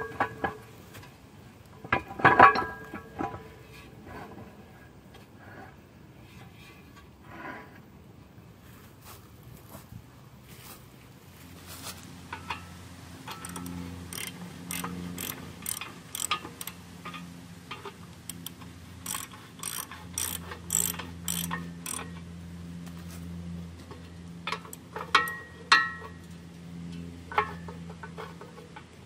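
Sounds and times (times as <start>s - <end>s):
metallic clanks: 12.3s - 22.2s, 24.4s - 26.2s
ratchet wrench clicking: 13.3s - 22.2s.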